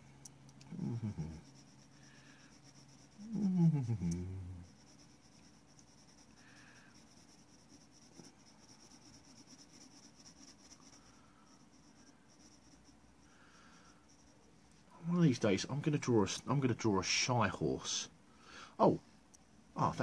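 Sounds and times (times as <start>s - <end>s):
person making descending voice sound: 0.7s - 1.4s, 3.2s - 4.6s
pencil scratching on paper: 0.7s - 3.4s, 4.6s - 14.6s.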